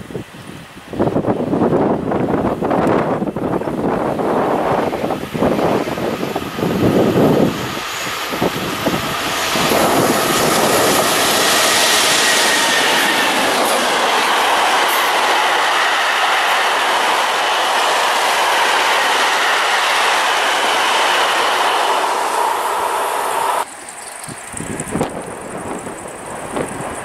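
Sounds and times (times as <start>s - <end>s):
freight train wheels rolling: 1.8s - 27.0s.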